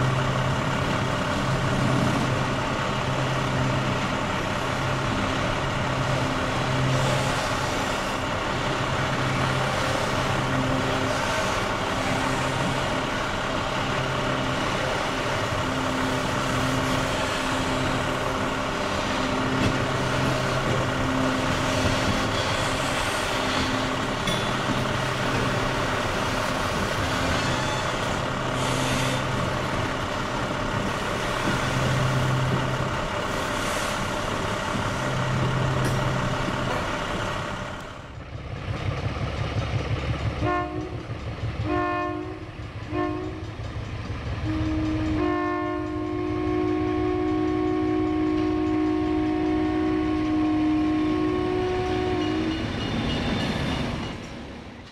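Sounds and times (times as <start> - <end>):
freight cars rolling past: 0.0 - 40.4
locomotive chime horn blasts: 3.2 - 34.0, 40.4 - 43.7, 44.3 - 54.2.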